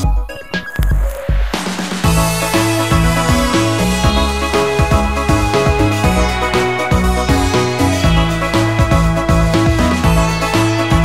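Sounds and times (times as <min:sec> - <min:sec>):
background music with bass line: 0:00.0 - 0:11.0.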